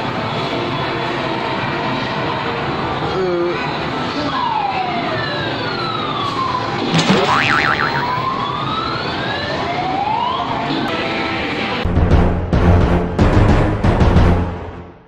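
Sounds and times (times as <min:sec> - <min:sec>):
arcade din: 0:06.9 - 0:08.2
claw machine electronic tones: 0:06.9 - 0:08.2.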